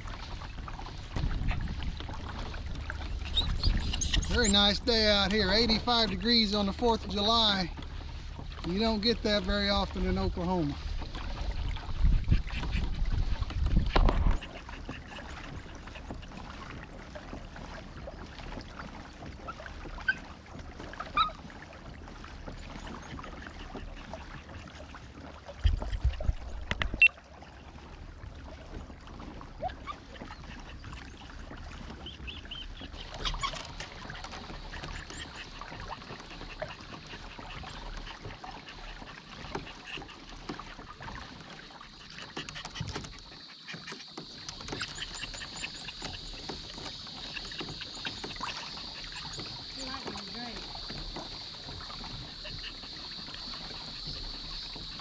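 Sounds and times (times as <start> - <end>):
wind buffeting microphone: 0.0 - 7.7, 8.6 - 14.7
kayak splashing through water: 0.0 - 55.0.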